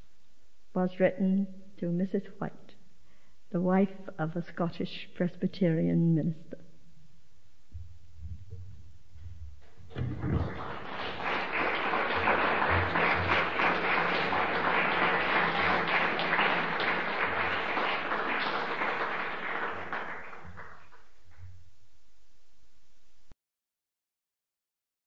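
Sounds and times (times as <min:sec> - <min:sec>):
audience applauding: 0:09.9 - 0:21.4.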